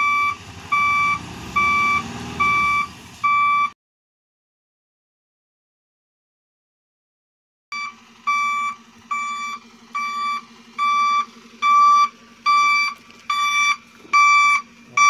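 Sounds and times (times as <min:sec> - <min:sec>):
diesel engine running: 0:00.0 - 0:03.7, 0:07.7 - 0:15.0
reversing alarm beeping: 0:00.0 - 0:03.7, 0:07.7 - 0:15.0.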